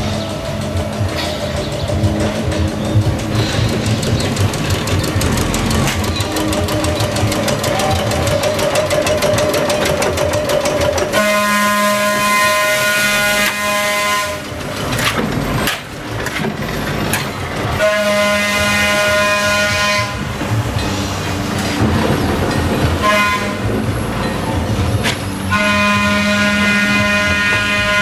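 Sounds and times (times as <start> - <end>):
trolley car rattling by: 0.0 - 28.0
trolley horn blast: 11.1 - 14.7, 17.7 - 20.6, 23.0 - 23.9, 25.0 - 28.0.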